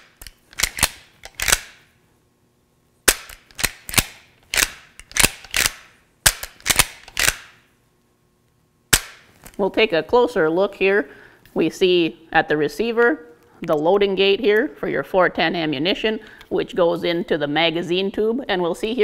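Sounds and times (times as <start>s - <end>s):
shotgun lever action clacking: 0.2s - 1.8s, 3.1s - 7.5s.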